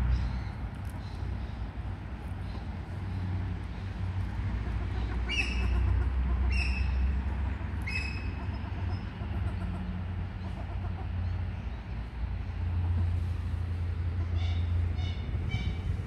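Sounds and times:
steady low rumble: 0:10.2 - 0:16.0.

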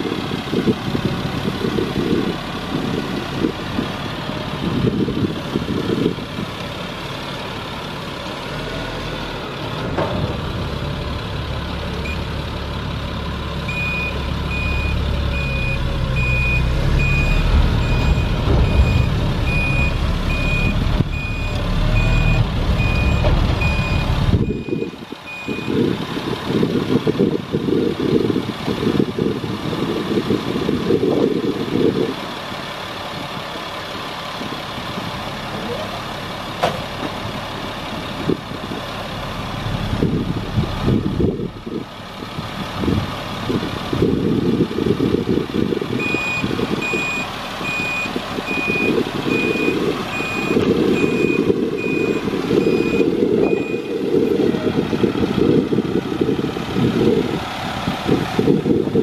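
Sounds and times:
diesel truck engine running: 0:00.0 - 0:59.0
backup alarm beeping: 0:13.7 - 0:25.8, 0:46.0 - 0:54.0.

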